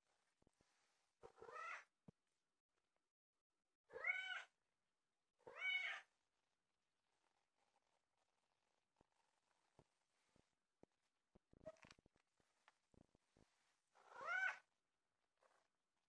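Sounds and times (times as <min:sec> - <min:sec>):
cat meowing: 0:01.4 - 0:01.9, 0:03.9 - 0:04.5, 0:05.4 - 0:06.1, 0:14.1 - 0:14.7.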